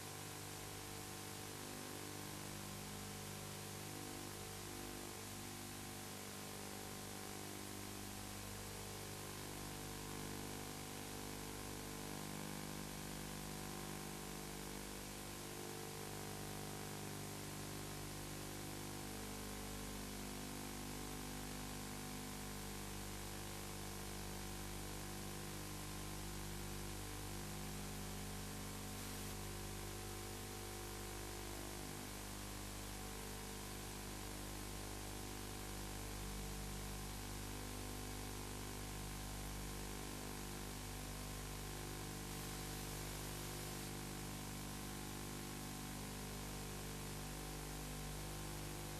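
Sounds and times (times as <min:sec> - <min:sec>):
low electrical hum: 0:26.1 - 0:47.2.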